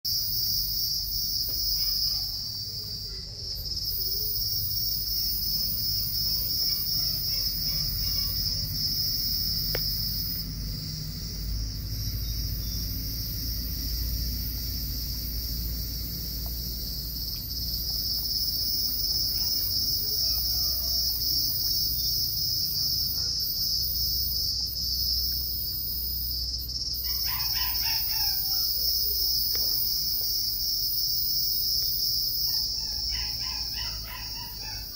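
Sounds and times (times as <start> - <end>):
insects trilling: 0.1 - 34.9
low background rumble: 5.1 - 34.9
rooster crowing: 27.0 - 28.8, 32.8 - 34.9.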